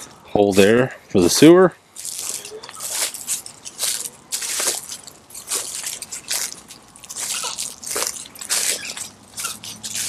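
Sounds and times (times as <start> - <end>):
footsteps on gravel: 2.0 - 10.0.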